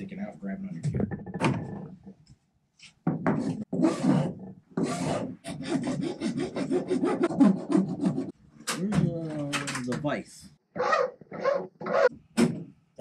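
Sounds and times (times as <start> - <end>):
hand tool filing plastic edge: 3.3 - 8.4.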